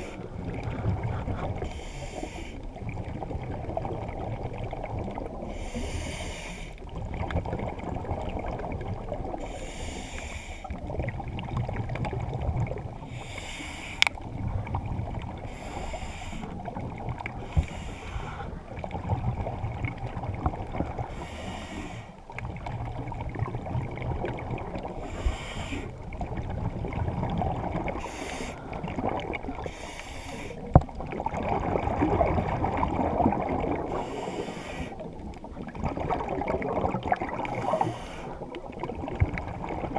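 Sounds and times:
low water rumble: 0:00.0 - 0:39.9
exhaled bubbles rushing: 0:02.7 - 0:05.5, 0:06.9 - 0:09.4, 0:10.7 - 0:13.1, 0:14.2 - 0:15.5, 0:18.2 - 0:21.1, 0:22.3 - 0:25.3, 0:25.9 - 0:29.8, 0:30.7 - 0:34.4, 0:35.0 - 0:39.9.

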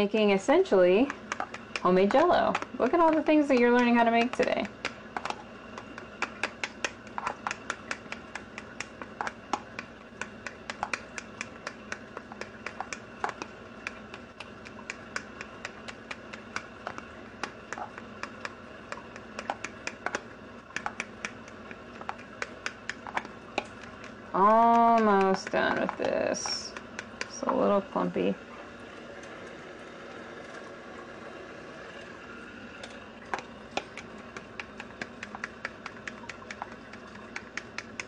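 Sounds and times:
utensil tapping plastic container: 0:18.2 - 0:27.6.

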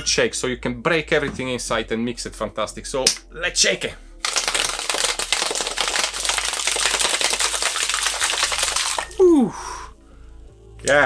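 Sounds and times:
ice rattling in cocktail shaker: 0:04.2 - 0:09.2.

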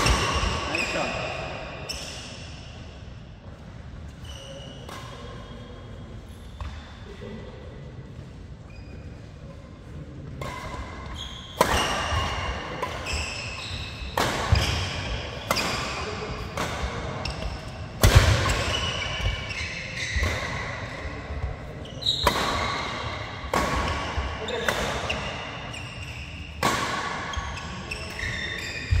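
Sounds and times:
shoes squeaking on court: 0:04.1 - 0:07.0, 0:08.6 - 0:09.3, 0:10.4 - 0:23.2, 0:23.9 - 0:26.6, 0:27.3 - 0:29.0
racket striking shuttlecock: 0:11.6 - 0:13.1, 0:14.1 - 0:19.4, 0:22.2 - 0:25.2, 0:26.6 - 0:27.2.

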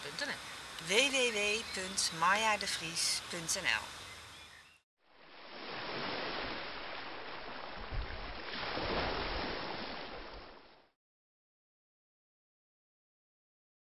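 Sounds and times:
rushing water: 0:05.2 - 0:10.9.

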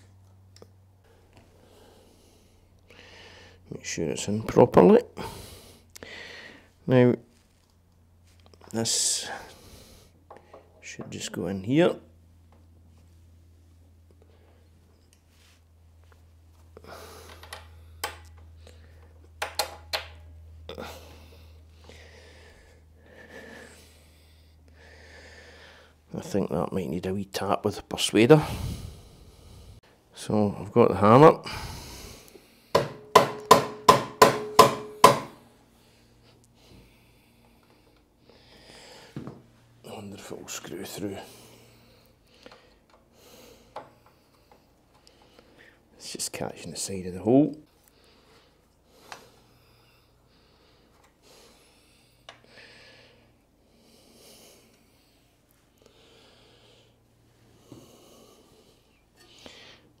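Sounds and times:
person breathing through nose: 0:05.2 - 0:06.7, 0:20.7 - 0:26.0, 0:28.4 - 0:29.9, 0:47.9 - 0:59.9
hammer tapping metal bolt: 0:32.8 - 0:35.4.

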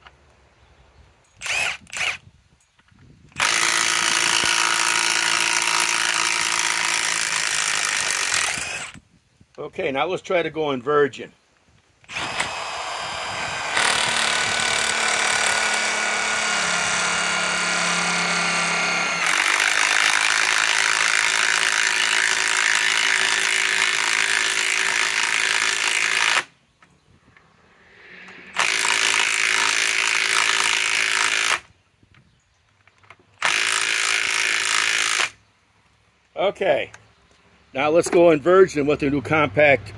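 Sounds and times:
impact wrench driving screw into log: 0:01.4 - 0:02.2, 0:03.3 - 0:09.0, 0:12.1 - 0:16.8.

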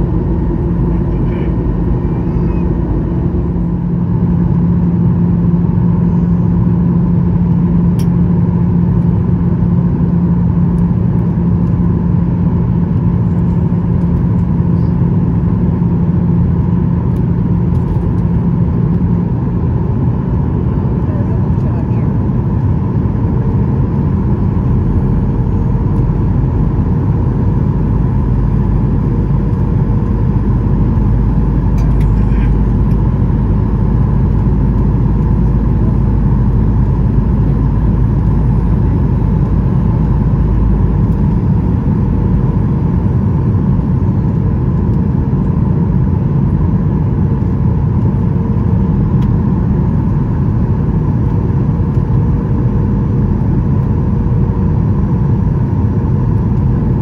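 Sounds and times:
two-tone hum: 0:00.0 - 0:06.4
jet engines and airflow rumbling: 0:00.0 - 0:57.0.

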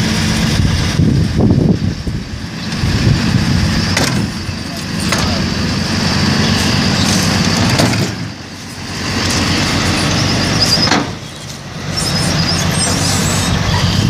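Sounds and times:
thin high squeak: 0:09.9 - 0:14.0.

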